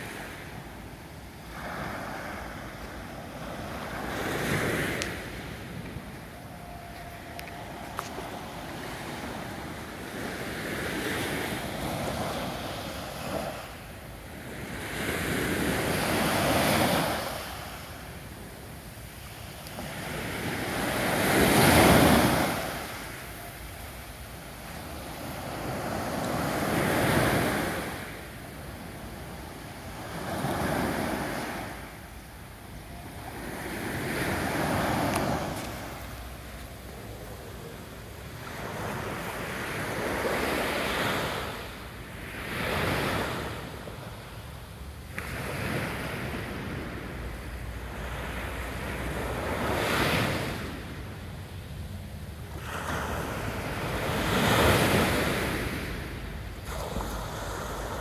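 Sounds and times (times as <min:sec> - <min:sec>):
small waves breaking on beach: 0:00.0 - 0:32.0, 0:52.4 - 0:58.0.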